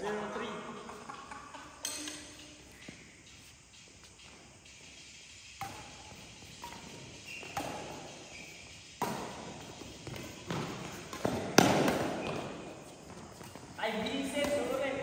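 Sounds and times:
rackets striking shuttlecock: 0:00.9 - 0:03.0, 0:05.5 - 0:15.0
shoes squeaking on court floor: 0:05.6 - 0:15.0.

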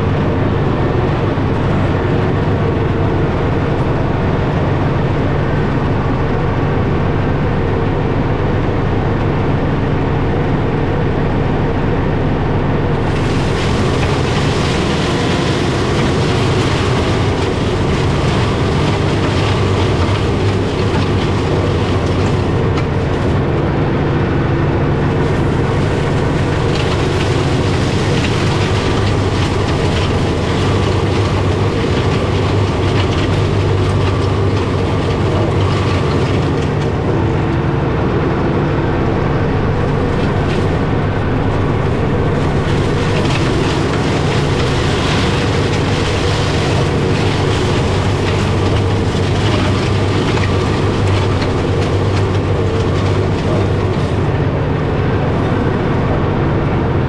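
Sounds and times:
mulching mower rattling clatter: 0:00.0 - 0:57.0
tractor diesel engine running: 0:00.0 - 0:57.0.

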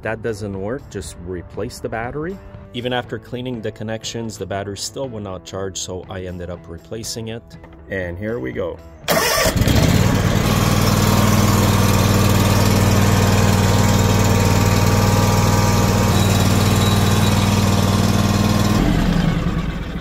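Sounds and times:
engine cranking and starting: 0:09.1 - 0:20.0
lawn tractor engine running: 0:09.1 - 0:20.0.

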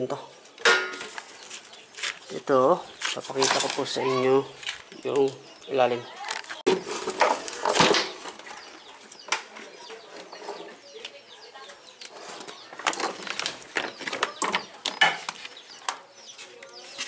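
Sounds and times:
rustling: 0:06.2 - 0:17.0.

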